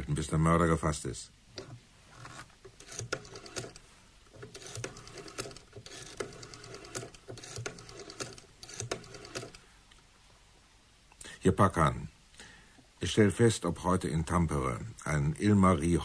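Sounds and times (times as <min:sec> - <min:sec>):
rotary phone dial clicking: 0:01.6 - 0:03.8, 0:04.4 - 0:09.6.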